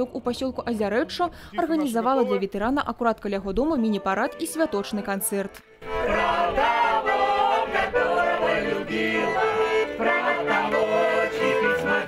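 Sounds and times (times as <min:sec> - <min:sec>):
accordion playing dance tune: 0:01.6 - 0:02.7, 0:03.6 - 0:12.0
voices singing along: 0:05.8 - 0:12.0.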